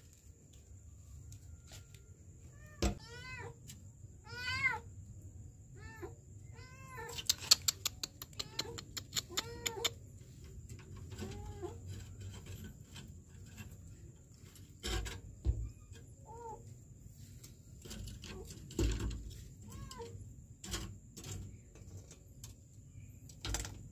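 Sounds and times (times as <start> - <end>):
sharp clicks: 7.2 - 10.0.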